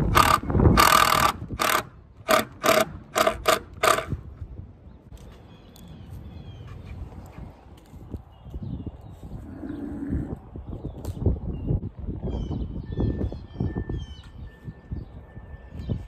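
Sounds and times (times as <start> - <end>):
drill driving screws into wood: 0.0 - 4.2.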